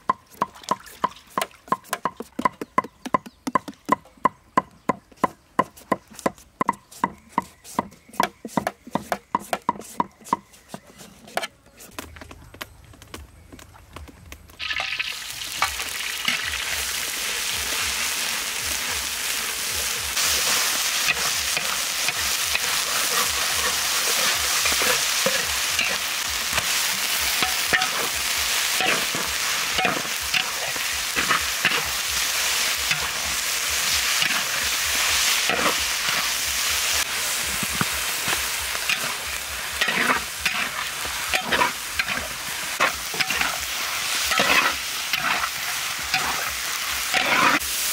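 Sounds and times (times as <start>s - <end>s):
meat sizzling in hot oil: 14.6s - 47.9s
metal spatula scraping pan: 20.2s - 26.1s, 28.8s - 31.9s, 33.9s - 34.7s, 35.4s - 36.3s, 38.9s - 39.2s, 39.8s - 46.5s, 47.1s - 47.7s.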